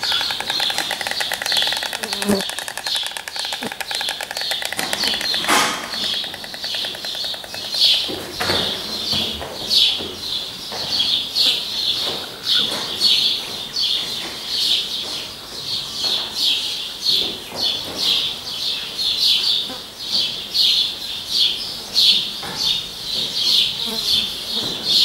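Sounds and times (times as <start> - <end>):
high-pitched rhythmic chirping: 0.0 - 8.1.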